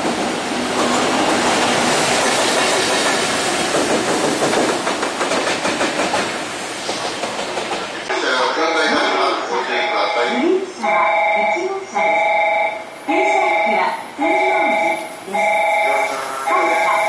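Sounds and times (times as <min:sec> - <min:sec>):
locomotive wheels clicking over rail joints: 0:02.2 - 0:08.1.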